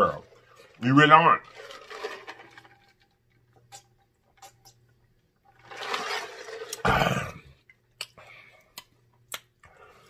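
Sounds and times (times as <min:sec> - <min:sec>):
person gulping: 0:06.6 - 0:07.8.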